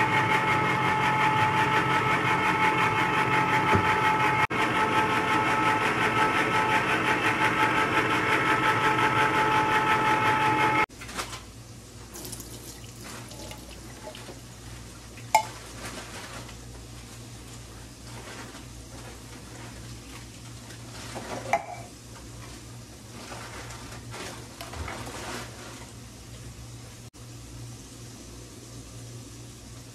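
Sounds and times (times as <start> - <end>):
low steady hum: 12.0 - 16.2.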